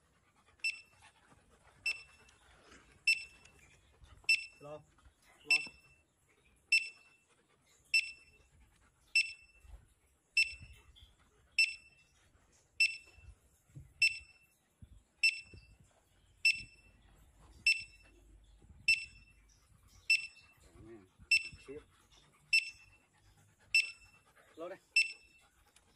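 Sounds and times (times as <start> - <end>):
metal detector beeps: 0.6 - 0.9, 1.9 - 2.2, 3.1 - 3.5, 4.3 - 4.6, 5.5 - 5.9, 6.7 - 7.1, 8.0 - 8.4, 9.2 - 9.6, 10.4 - 10.8, 11.6 - 12.0, 12.8 - 13.2, 14.0 - 14.4, 15.2 - 15.7, 16.4 - 16.9, 17.7 - 18.1, 18.9 - 19.3, 20.1 - 20.5, 21.3 - 21.6, 22.5 - 22.9, 23.8 - 24.1, 25.0 - 25.4.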